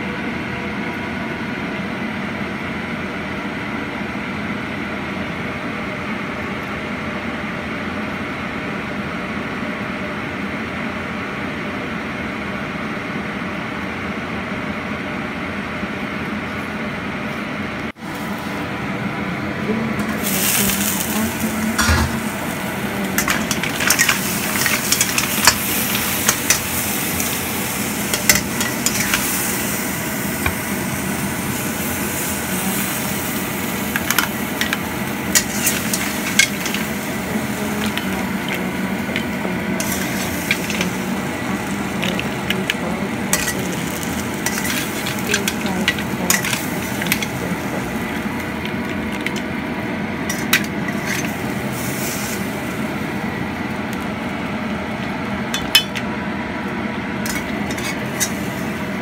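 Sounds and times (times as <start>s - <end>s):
low rumble of covered wok: 0.0s - 59.0s
loud sizzling: 17.9s - 59.0s
shells clattering in a wok: 23.1s - 27.4s, 28.1s - 29.8s, 33.9s - 49.5s, 50.3s - 52.4s, 55.6s - 56.0s, 57.3s - 58.5s.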